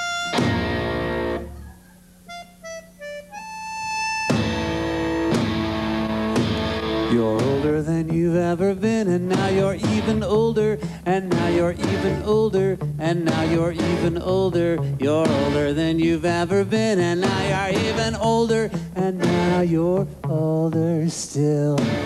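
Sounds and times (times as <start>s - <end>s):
live band with accordion and guitars: 0.0s - 1.6s, 2.3s - 7.8s, 17.2s - 20.6s, 21.8s - 22.0s.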